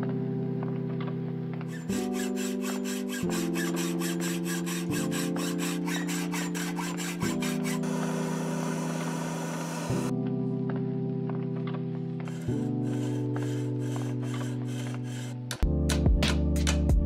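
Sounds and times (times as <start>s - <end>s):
background music with sustained chords: 0.0s - 17.0s
hand saw cutting brass sheet: 1.7s - 10.1s, 12.3s - 15.6s
gas forge burner hissing: 7.7s - 10.1s.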